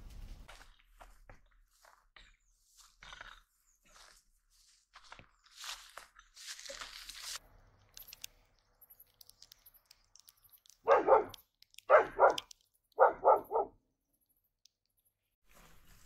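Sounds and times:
dog barking: 0:10.8 - 0:13.8.

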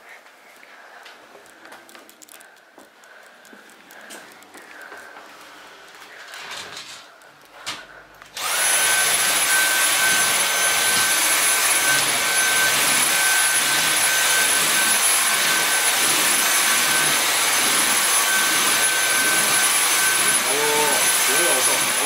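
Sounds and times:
vacuum head on wooden floor: 0:05.8 - 0:20.4
stick vacuum running: 0:07.6 - 0:22.0.

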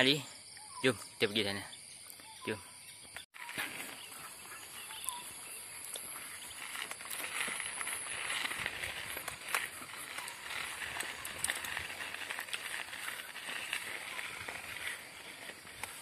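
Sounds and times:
bicycle tyres on dirt trail: 0:03.3 - 0:16.0
bike clicking and rattling: 0:06.0 - 0:16.0.

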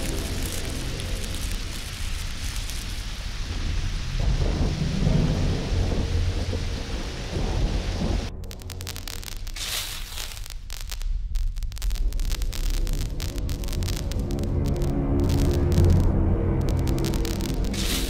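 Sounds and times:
crackling electrical buzzing: 0:00.0 - 0:03.5, 0:08.3 - 0:18.0
heavy rain: 0:00.0 - 0:18.0
rolling thunder: 0:03.4 - 0:08.5.

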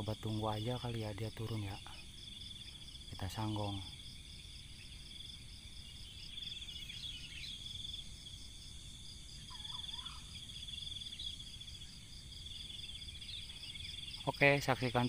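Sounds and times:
insects trilling: 0:00.0 - 0:15.0
faint bird call: 0:09.4 - 0:11.9.

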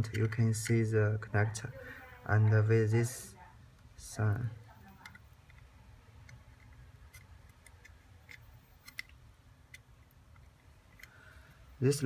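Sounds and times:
plastic connectors clicking: 0:00.0 - 0:00.8, 0:03.8 - 0:11.2.

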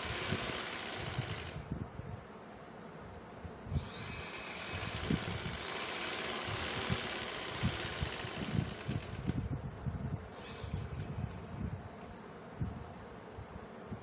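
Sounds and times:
sewing machine running: 0:00.0 - 0:01.6, 0:03.8 - 0:09.4.

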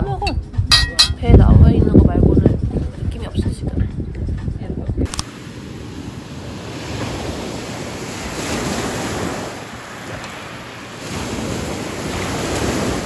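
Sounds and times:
waves washing onto beach: 0:05.1 - 0:13.0.

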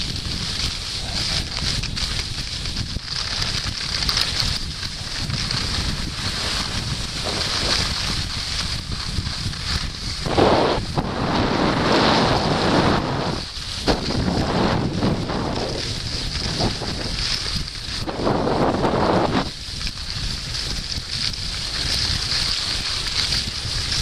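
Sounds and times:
skis sliding on snow: 0:00.0 - 0:24.0
wind buffeting microphone: 0:00.0 - 0:24.0
loud rush of noise: 0:10.0 - 0:17.2.

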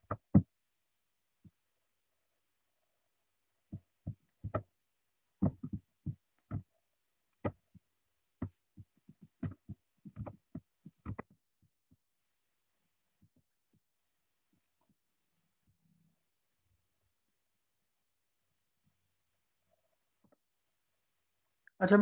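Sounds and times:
short clicks and soft thumps: 0:03.7 - 0:04.7, 0:05.4 - 0:12.0.

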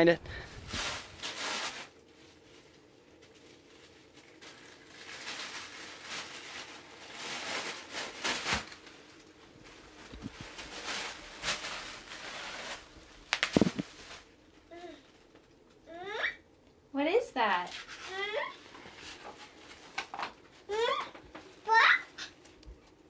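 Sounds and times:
tissue paper crinkling: 0:00.4 - 0:15.1, 0:17.7 - 0:20.9.

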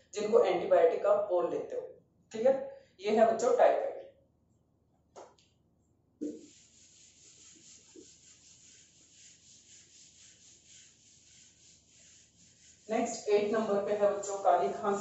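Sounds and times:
duster wiping whiteboard: 0:06.2 - 0:15.0.

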